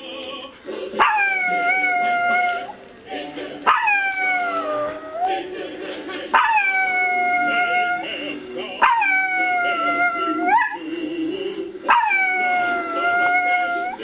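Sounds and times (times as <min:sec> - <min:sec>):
music playing: 0:00.0 - 0:14.0
dog howling: 0:01.0 - 0:02.7, 0:03.7 - 0:05.4, 0:06.4 - 0:08.1, 0:08.8 - 0:10.9, 0:11.9 - 0:14.0.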